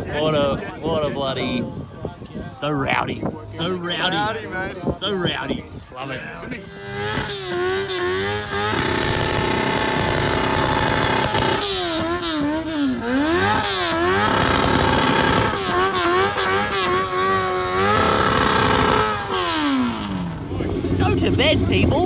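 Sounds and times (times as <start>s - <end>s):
motorcycle engine revving: 6.4s - 22.0s.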